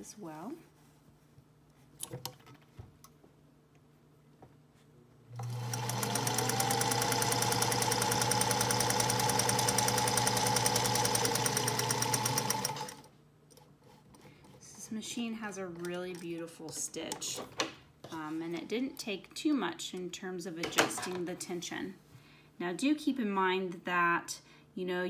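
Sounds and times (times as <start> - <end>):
sewing machine sewing: 5.3 - 13.1.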